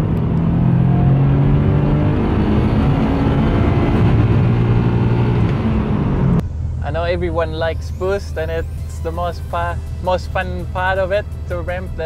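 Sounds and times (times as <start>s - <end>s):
car engine from inside cabin: 0.0s - 8.1s.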